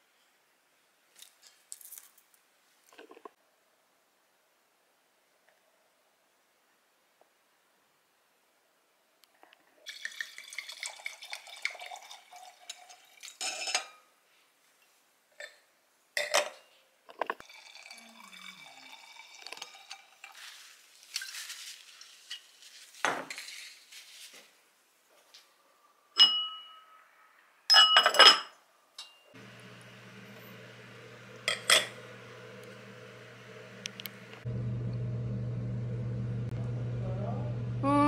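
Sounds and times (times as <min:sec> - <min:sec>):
running water: 0:09.8 - 0:13.4, 0:17.4 - 0:22.7
dishes and cutlery clinking: 0:13.4 - 0:14.1, 0:16.2 - 0:17.4, 0:26.2 - 0:26.8, 0:27.7 - 0:29.3, 0:31.4 - 0:32.0.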